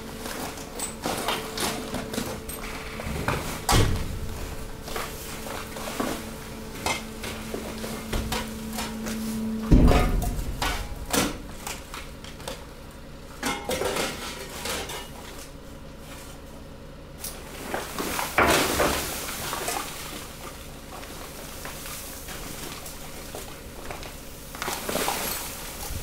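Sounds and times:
steady hum: 0.0s - 26.0s
waste shifting in a press hopper: 0.0s - 26.0s
heavy thud: 2.7s - 5.6s, 9.6s - 11.9s.

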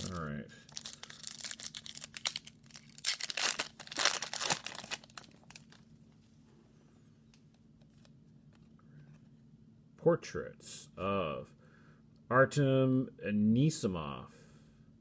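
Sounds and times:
foil wrapper tearing and crinkling: 0.0s - 5.8s.

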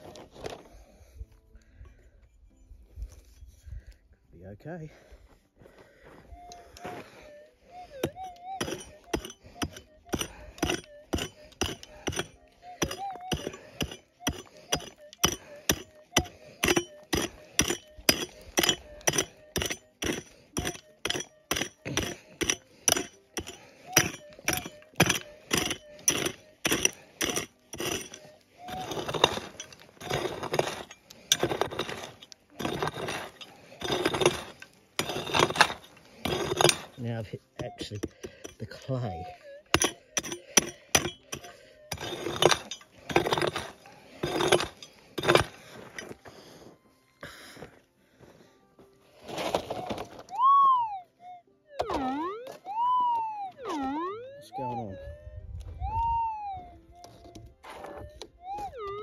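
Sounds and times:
metal tool chipping rocky ground: 0.0s - 1.0s, 6.4s - 46.5s, 49.2s - 50.3s, 51.8s - 52.6s
scraping dirt: 0.0s - 1.8s, 5.8s - 50.4s.

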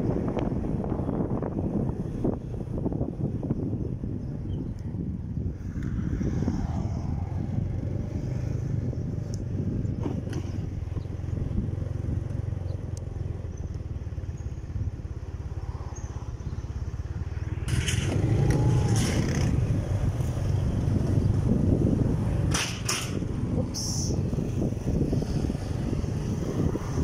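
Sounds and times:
road noise: 0.0s - 27.0s
motorcycle engine running: 7.2s - 27.0s.

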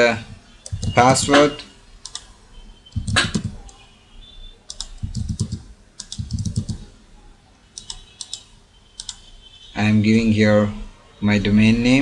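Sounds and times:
keyboard typing: 0.6s - 2.3s, 2.9s - 3.8s, 4.7s - 7.0s, 7.7s - 9.3s.

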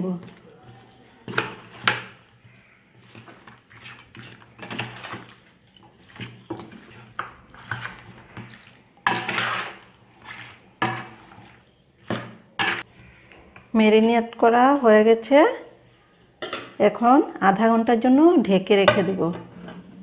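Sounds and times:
metal spoon scraping steel bowl: 0.2s - 13.2s.

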